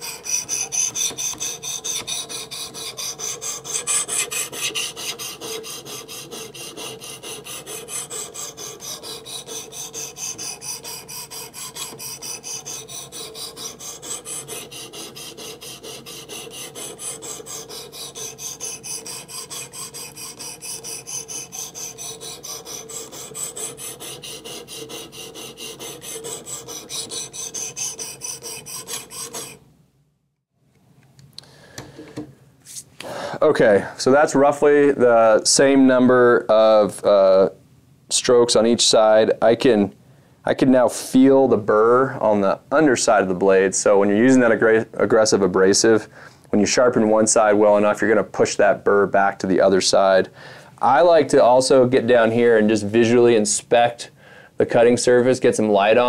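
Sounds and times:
knife sharpener rasping scrape: 0:00.0 - 0:29.6.

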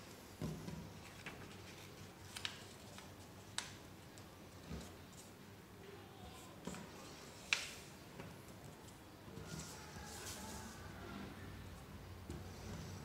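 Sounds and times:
paper crinkling and creasing: 0:00.9 - 0:03.8, 0:09.4 - 0:10.9.

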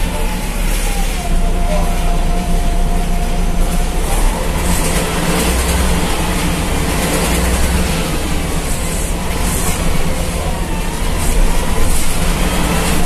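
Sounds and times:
bus engine drone: 0:00.0 - 0:13.0
road noise: 0:00.0 - 0:13.0.

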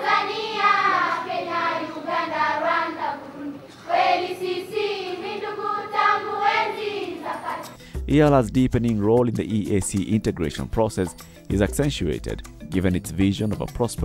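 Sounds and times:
voices singing: 0:00.0 - 0:07.8.

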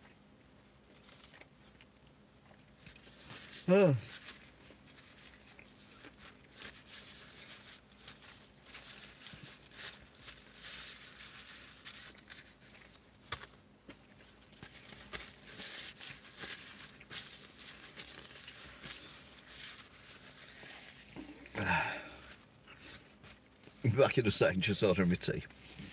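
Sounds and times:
paper wrapper rustling: 0:03.0 - 0:13.6, 0:14.2 - 0:21.3.

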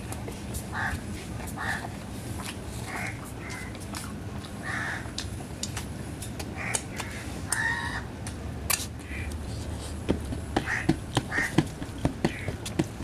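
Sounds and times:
crows cawing: 0:00.7 - 0:01.0, 0:01.6 - 0:01.9, 0:02.9 - 0:03.7, 0:04.6 - 0:05.1, 0:06.6 - 0:08.1, 0:09.0 - 0:09.4, 0:10.6 - 0:12.6.

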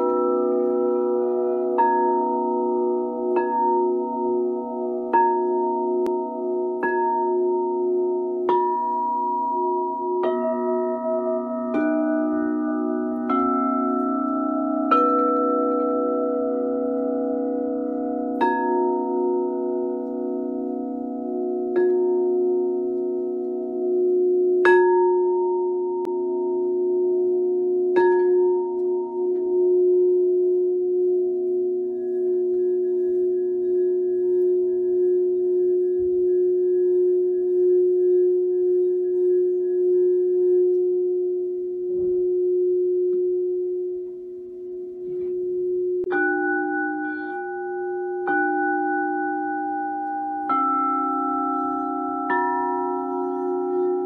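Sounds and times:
singing bowls ringing: 0:00.0 - 0:54.0
singing bowl strikes: 0:45.1 - 0:54.0.

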